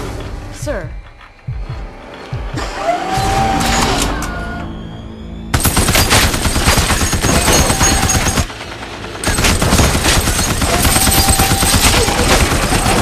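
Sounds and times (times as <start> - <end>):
machine gun rapid fire: 5.6 - 13.0.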